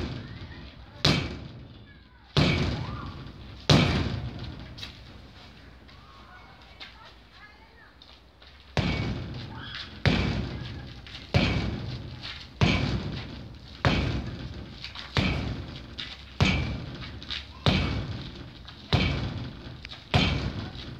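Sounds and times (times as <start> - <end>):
punches thudding on padded board: 1.0 - 1.5, 2.4 - 4.4, 8.8 - 10.7, 11.3 - 20.9.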